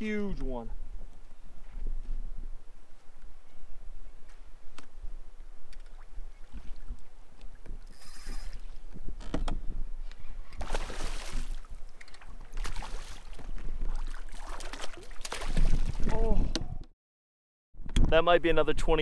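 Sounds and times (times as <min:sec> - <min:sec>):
fish splashing at surface: 0:10.6 - 0:11.7, 0:14.0 - 0:16.0.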